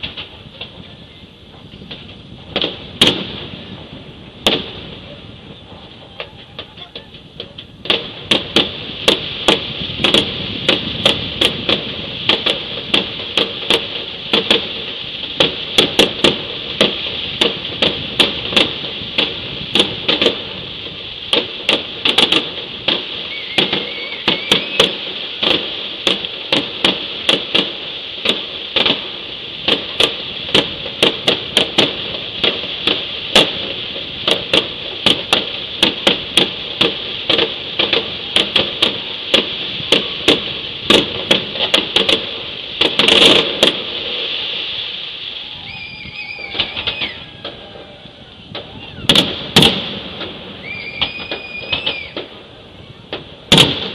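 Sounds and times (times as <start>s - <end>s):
fireworks bangs and cracks: 0.0s - 53.9s
steady hiss: 0.0s - 53.9s.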